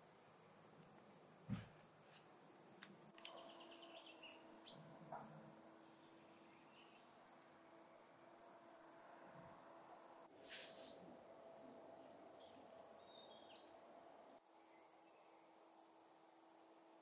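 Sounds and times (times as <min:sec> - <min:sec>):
crickets chirring: 0:00.0 - 0:16.2
bird chirps: 0:03.2 - 0:06.0.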